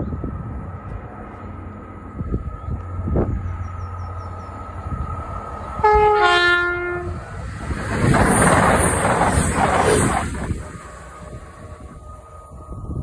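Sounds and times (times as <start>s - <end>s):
train passing with rushing noise: 0.0s - 13.0s
two-tone train horn: 5.8s - 7.2s.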